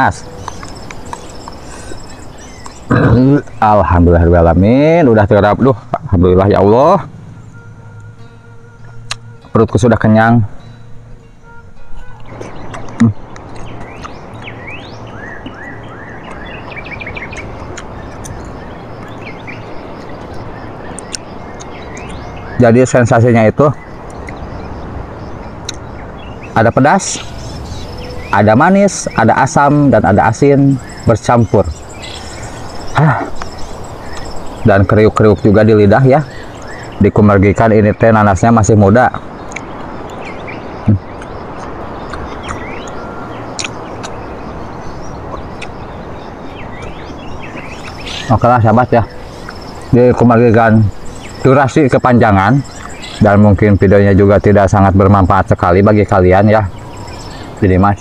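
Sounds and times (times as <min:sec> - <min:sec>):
birds chirping and whistling: 0:00.0 - 0:58.0
outdoor background noise: 0:00.0 - 0:58.0
steady background hiss: 0:00.0 - 0:58.0
sharp clicks: 0:43.6 - 0:44.2.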